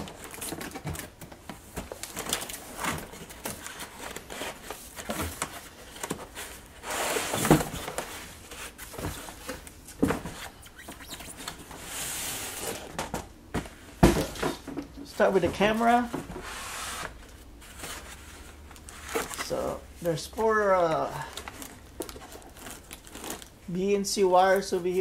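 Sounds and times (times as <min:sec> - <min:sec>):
cardboard scraping rustles: 0:00.0 - 0:12.9, 0:15.2 - 0:23.5.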